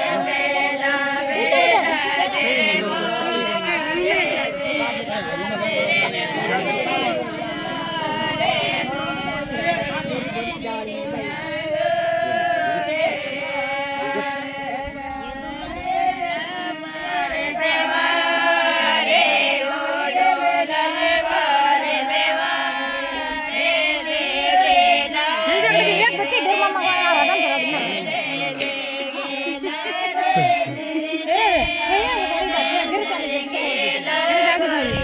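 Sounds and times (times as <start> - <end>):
voices singing together: 0.0 - 35.0.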